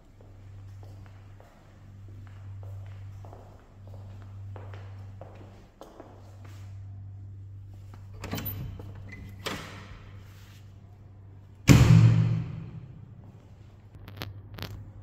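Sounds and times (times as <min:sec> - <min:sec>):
loud thud: 0:11.7 - 0:13.0.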